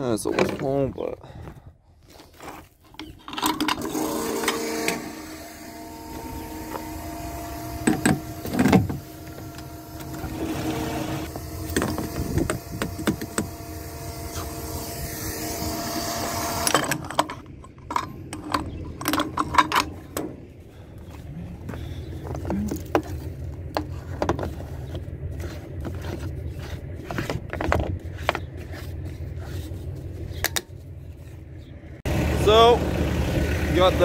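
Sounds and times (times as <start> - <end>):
electric pump humming: 3.7 - 17.5
nozzle handling clicks: 16.6 - 20.4.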